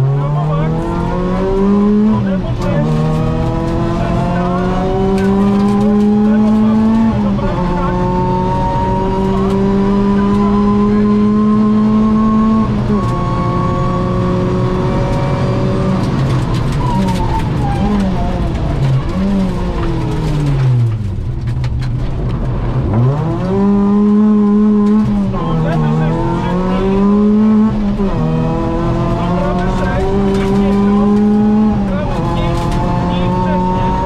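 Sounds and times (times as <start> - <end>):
car engine revving: 0.0 - 34.0
downshift throttle blips: 22.8 - 34.0.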